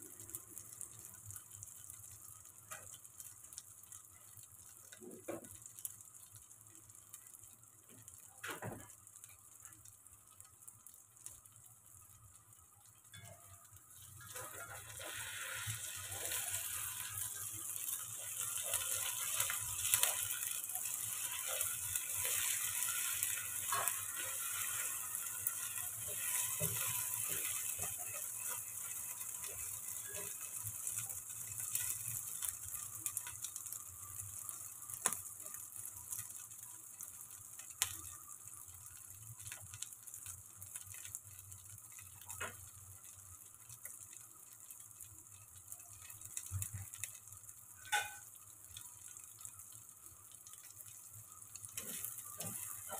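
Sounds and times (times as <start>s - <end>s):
omelette sizzling in oil: 0.0s - 52.9s
spatula scraping a pan: 14.2s - 30.5s.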